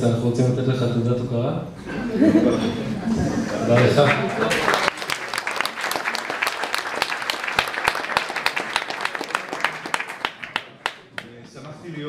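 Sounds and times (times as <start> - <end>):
audience applauding: 3.5 - 11.4.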